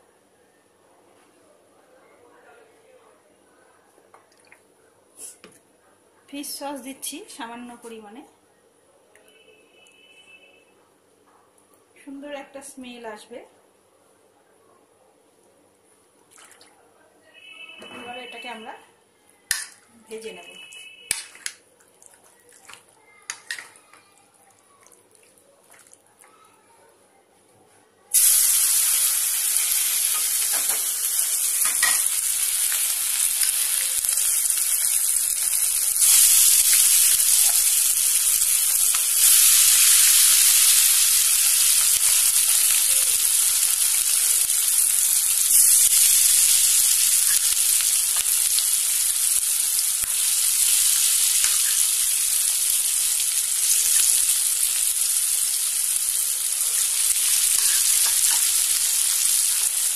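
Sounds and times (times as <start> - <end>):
chicken sizzling in hot oil: 28.1 - 59.9.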